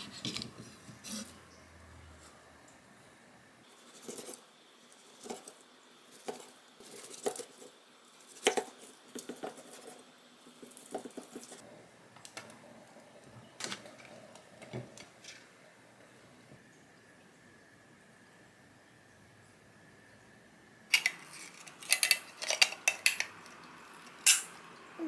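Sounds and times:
tongs clicking: 0:20.9 - 0:24.6.

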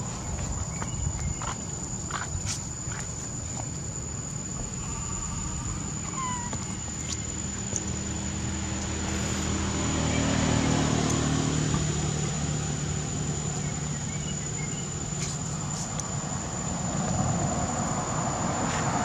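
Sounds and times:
high insect whine: 0:00.0 - 0:19.0
vehicle engine humming: 0:00.0 - 0:19.0
brief high squeaks: 0:06.0 - 0:06.8.

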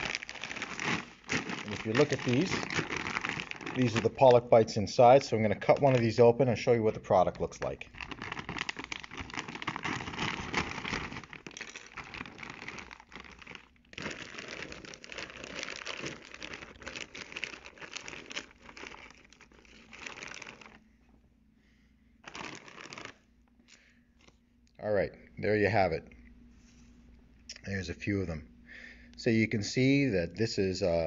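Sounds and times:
plastic bag crinkling: 0:00.0 - 0:20.8, 0:22.2 - 0:24.4.

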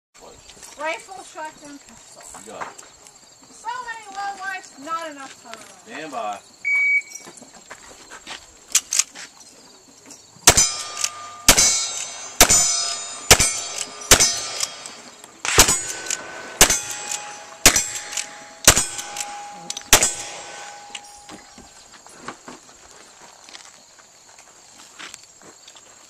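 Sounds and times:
rifle shots: 0:10.4 - 0:21.6
steel target clanging: 0:10.5 - 0:21.8.

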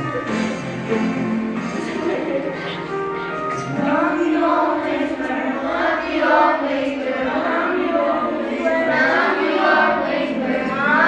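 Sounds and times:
boys singing in chorus: 0:03.7 - 0:11.0.

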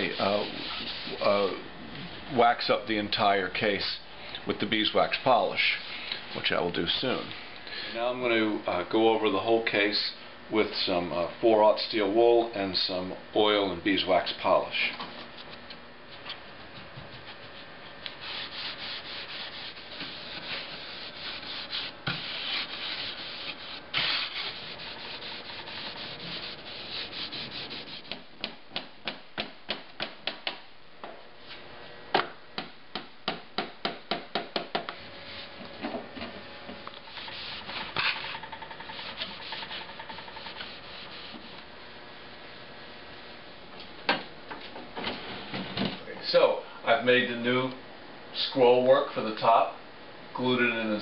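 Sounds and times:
steel wool rubbing on wood: 0:00.0 - 0:01.4, 0:16.6 - 0:28.2, 0:37.0 - 0:41.7.

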